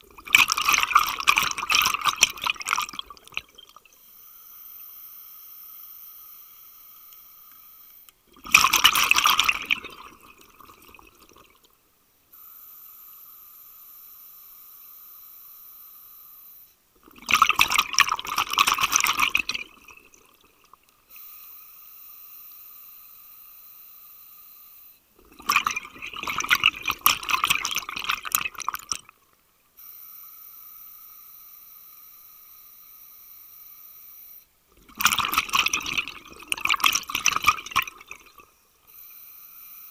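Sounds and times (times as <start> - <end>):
scuba regulator exhaled bubbles: 0.0 - 3.8, 8.3 - 11.6, 17.0 - 20.4, 25.2 - 29.1, 34.8 - 38.4.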